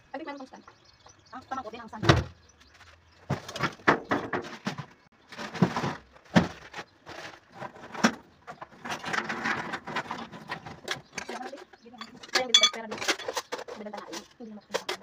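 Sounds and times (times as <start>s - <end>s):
rustling: 2.6s - 14.4s
small objects knocking: 3.3s - 15.0s.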